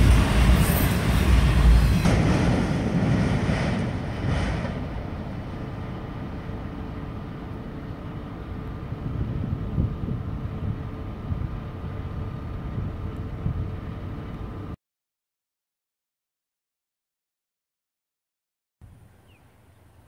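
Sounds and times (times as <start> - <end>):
freight train wheels rumbling: 0.0 - 14.8.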